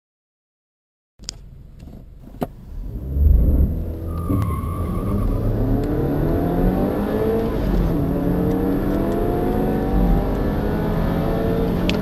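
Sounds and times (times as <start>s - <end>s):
car engine accelerating hard: 2.6s - 12.0s.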